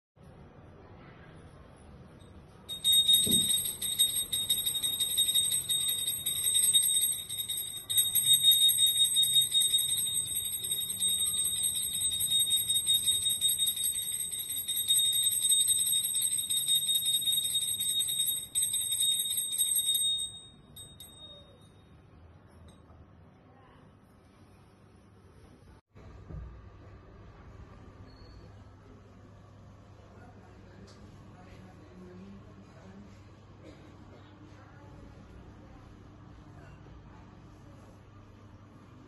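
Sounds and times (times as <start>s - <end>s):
small hand bell ringing rapidly: 2.7s - 21.8s.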